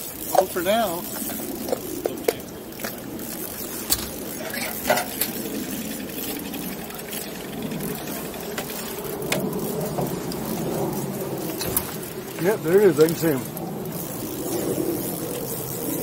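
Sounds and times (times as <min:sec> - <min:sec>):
fishing reel whirring: 0:00.0 - 0:16.0.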